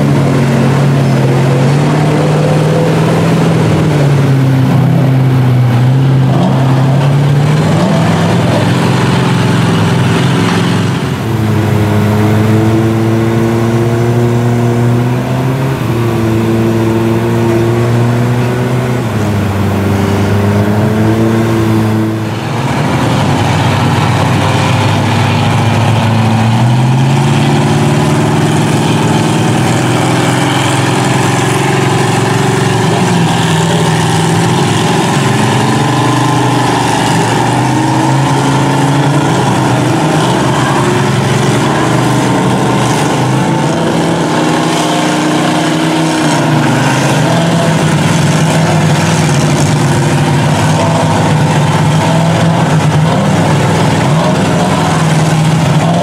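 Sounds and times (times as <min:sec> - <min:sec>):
truck engines revving hard: 0:00.0 - 0:56.0.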